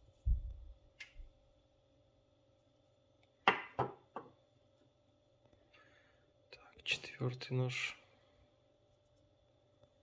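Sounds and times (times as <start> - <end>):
knives knocking on wooden table: 3.5 - 4.4.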